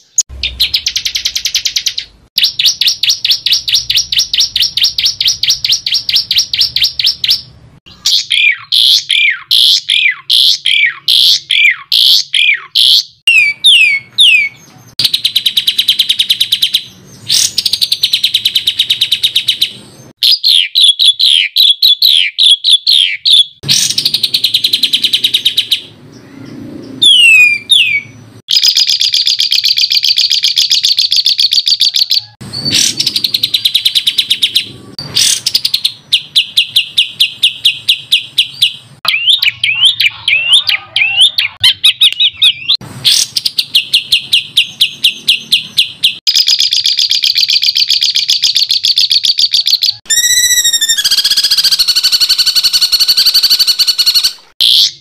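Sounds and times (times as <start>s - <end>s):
songbird singing rapid notes: 0.0s - 55.0s.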